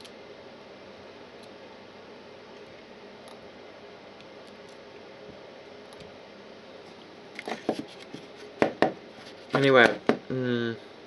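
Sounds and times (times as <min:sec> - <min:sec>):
room hiss: 0:00.0 - 0:11.0.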